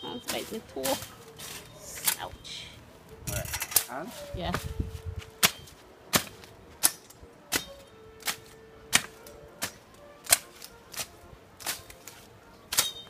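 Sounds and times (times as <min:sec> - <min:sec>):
blade chopping into brush: 0:05.4 - 0:13.0.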